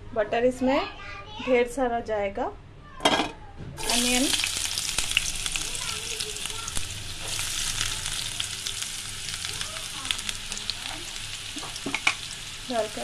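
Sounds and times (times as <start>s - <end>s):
onion sizzling in hot oil: 3.8s - 13.0s.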